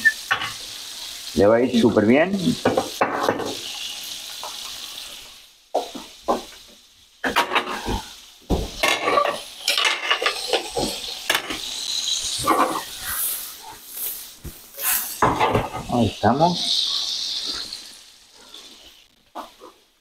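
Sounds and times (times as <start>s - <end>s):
prawns sizzling in a frying pan: 0.0s - 20.0s
spatula scraping a pan: 12.4s - 15.9s.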